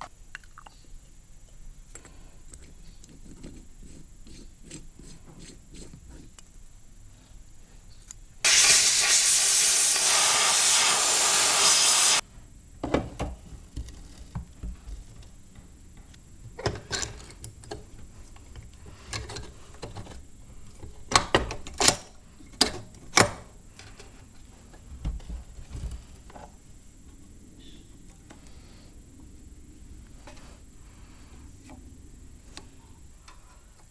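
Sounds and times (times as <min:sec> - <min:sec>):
pressurised air hissing: 0:08.4 - 0:12.2.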